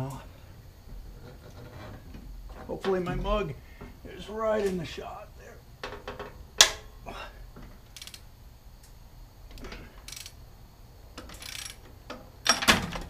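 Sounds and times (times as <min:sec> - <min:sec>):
socket ratchet clicking: 0:07.9 - 0:08.3, 0:10.0 - 0:10.4, 0:11.2 - 0:11.9.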